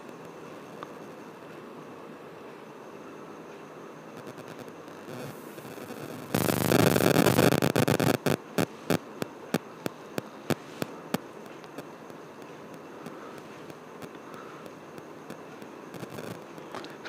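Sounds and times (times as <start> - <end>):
steady hiss: 0.0 - 17.0
loud electrical buzz: 4.1 - 11.9, 13.6 - 17.0.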